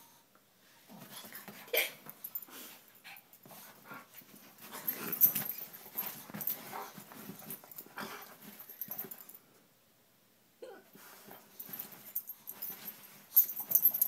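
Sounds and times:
dogs play-fighting noises: 0.9s - 9.4s, 10.9s - 14.0s.

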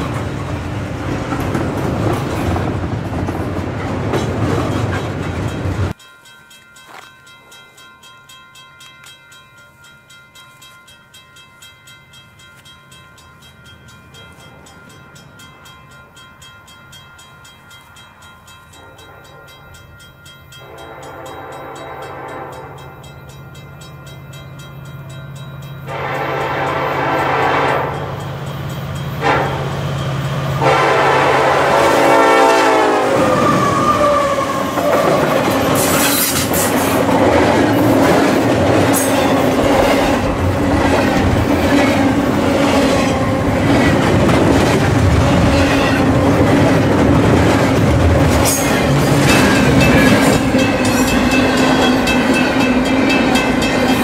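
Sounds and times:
train rumbling past: 0.0s - 6.0s, 12.1s - 54.0s
train air horn blasts: 20.6s - 22.9s, 25.9s - 28.2s, 29.2s - 29.8s, 30.6s - 35.0s.

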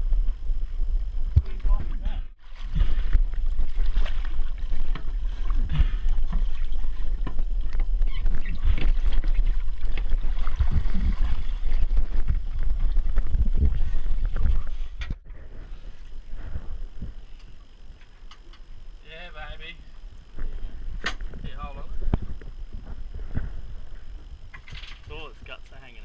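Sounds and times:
wind on microphone: 0.0s - 17.4s, 20.2s - 25.4s
water splashing against boat: 1.7s - 15.0s.

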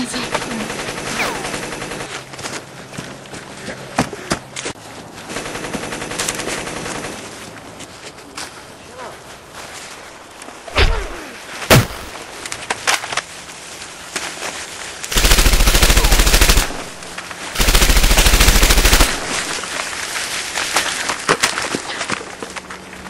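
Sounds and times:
machine-gun bursts: 0.2s - 2.2s, 5.3s - 7.3s, 15.1s - 19.6s
gunshots: 0.8s - 2.1s, 10.7s - 12.2s, 15.1s - 19.6s.

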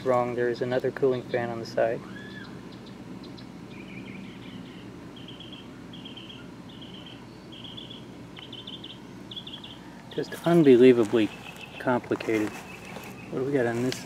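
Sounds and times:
animal buzzy chirps: 2.4s - 9.9s.

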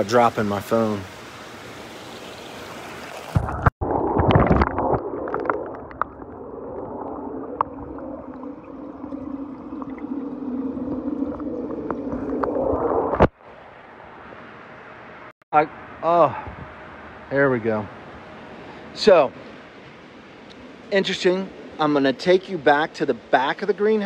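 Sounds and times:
splashing and gurgling: 2.7s - 13.3s
muffled underwater hum: 3.9s - 13.3s.

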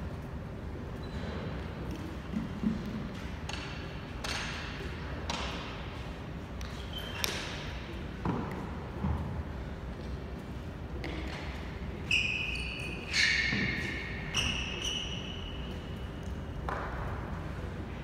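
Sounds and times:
shoe squeak on court floor: 1.0s - 1.5s, 6.7s - 7.6s, 12.0s - 16.2s.

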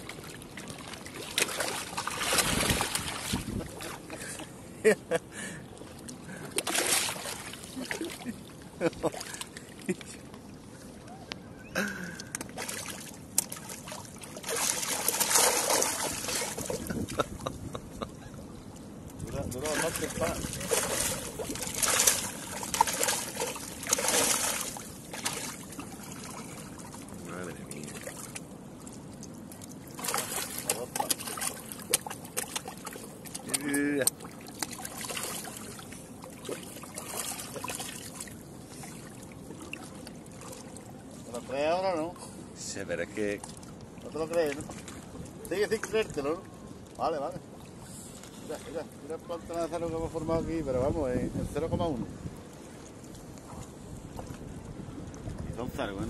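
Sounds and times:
sharp water slaps: 0.0s - 4.2s, 6.4s - 8.3s, 12.1s - 17.5s, 19.3s - 27.0s, 29.9s - 38.3s
fish splashing in shallow water: 0.0s - 4.6s, 5.4s - 11.0s, 11.6s - 41.3s
seawater lapping against rocks: 0.0s - 11.4s, 12.0s - 42.5s, 43.2s - 49.8s, 52.4s - 55.6s.

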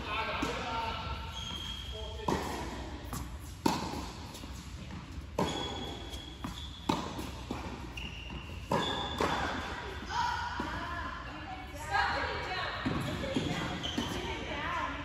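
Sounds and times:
tennis balls bouncing on court: 0.0s - 11.0s, 12.6s - 14.6s
tennis balls struck by rackets: 2.2s - 10.0s.

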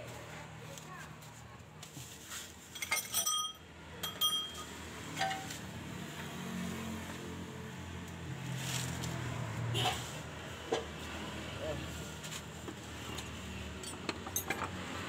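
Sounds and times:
metallic clinks with ringing: 2.8s - 5.5s.

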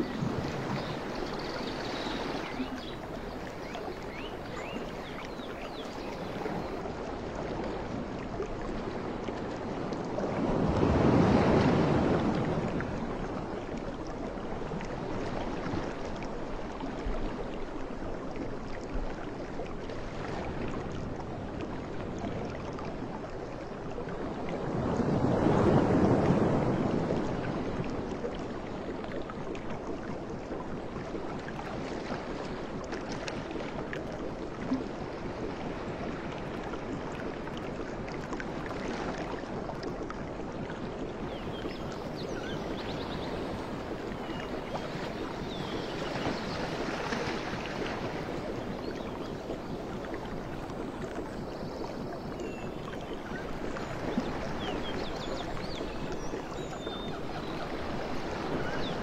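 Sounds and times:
wind on microphone: 0.0s - 17.6s, 30.3s - 59.0s.

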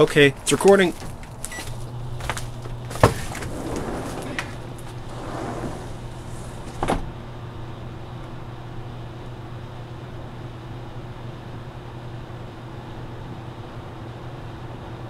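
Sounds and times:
microwave oven humming: 1.4s - 15.0s.

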